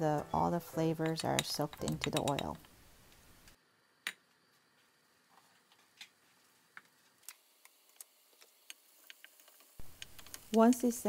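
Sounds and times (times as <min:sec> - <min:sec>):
oil popping in frying pan: 0:01.0 - 0:02.7, 0:06.7 - 0:11.0.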